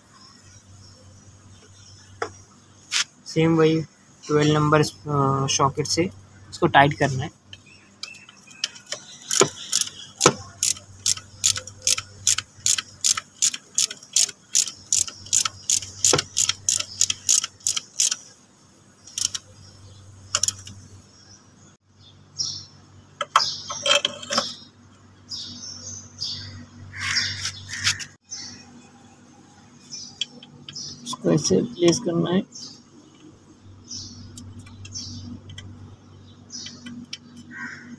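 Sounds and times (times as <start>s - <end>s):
ratchet wrench clicking: 8.6s - 18.3s, 19.1s - 19.5s, 20.3s - 20.8s.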